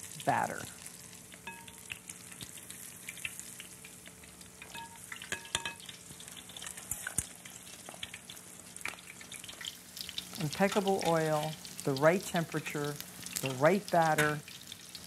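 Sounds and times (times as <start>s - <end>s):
food deep-frying in hot oil: 0.0s - 15.0s.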